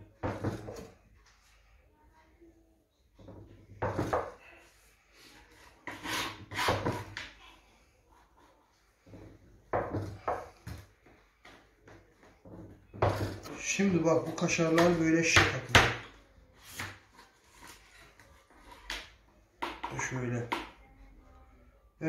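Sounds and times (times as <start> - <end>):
cheese scraping and knocking on board: 0.1 - 1.0, 3.2 - 4.4, 5.5 - 7.5, 8.2 - 20.0.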